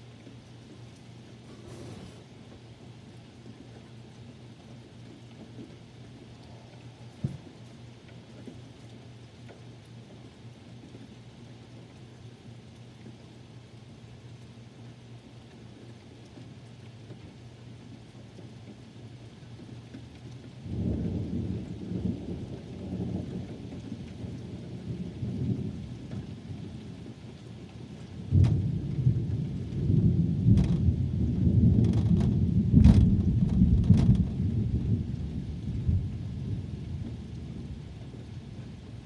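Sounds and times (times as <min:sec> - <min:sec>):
steady rain: 0:00.0 - 0:39.0
thunder rumbling: 0:20.6 - 0:27.0, 0:28.0 - 0:39.0
thunder cracks: 0:28.3 - 0:35.2.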